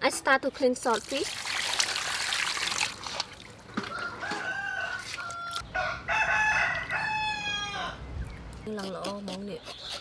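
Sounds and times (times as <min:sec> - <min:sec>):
rooster crowing: 0:03.9 - 0:08.0.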